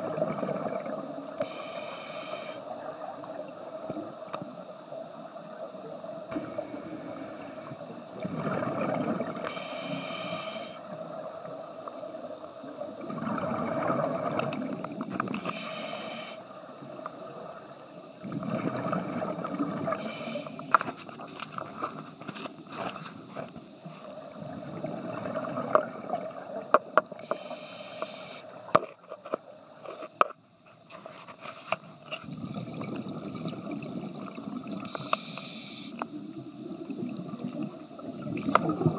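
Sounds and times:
exhaled bubbles rushing: 0.0 - 1.2, 8.2 - 9.5, 12.8 - 15.0, 17.2 - 20.0, 24.2 - 26.8, 32.3 - 34.9, 36.2 - 38.9
regulator breathing hiss: 1.4 - 2.8, 6.3 - 8.2, 9.4 - 11.0, 15.3 - 16.6, 20.0 - 20.9, 27.2 - 28.6, 34.8 - 36.1.

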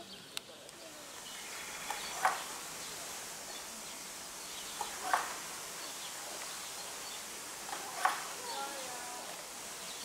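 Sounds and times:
bird calling: 0.0 - 10.0
outdoor background hiss: 0.0 - 10.0.

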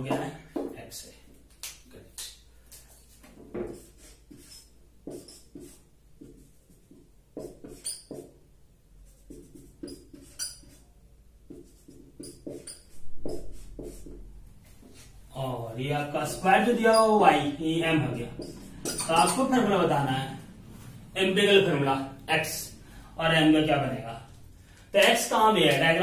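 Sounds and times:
whiteboard marker squeaking: 3.6 - 8.4, 9.1 - 10.9, 11.5 - 14.2, 16.7 - 17.3, 18.2 - 19.5.

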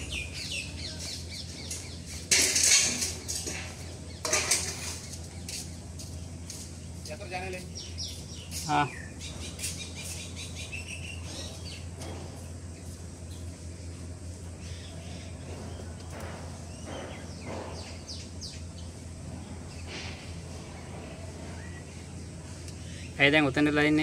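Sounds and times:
birds chirping: 0.0 - 24.0
steady low hum: 0.0 - 24.0.

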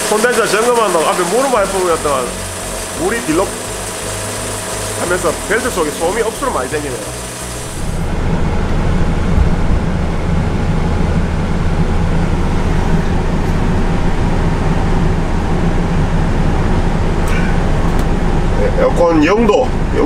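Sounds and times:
man talking: 0.0 - 2.4, 3.0 - 3.6, 5.0 - 7.2, 18.6 - 20.0
van engine running: 0.0 - 20.0.

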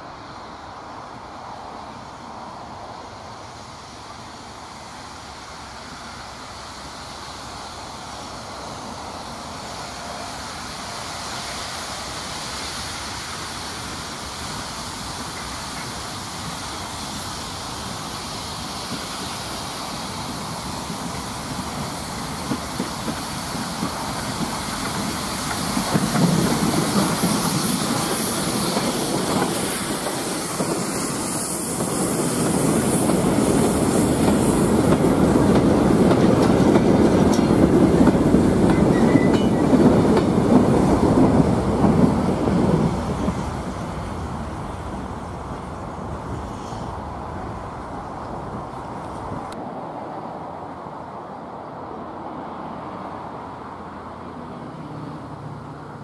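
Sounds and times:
steam locomotive passing: 0.0 - 56.0
wagons clattering over rail joints: 21.8 - 30.9, 32.6 - 42.1.

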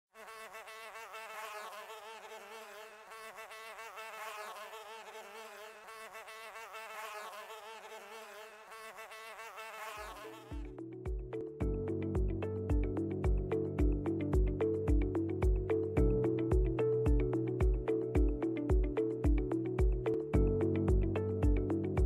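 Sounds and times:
flies buzzing: 0.2 - 11.6.

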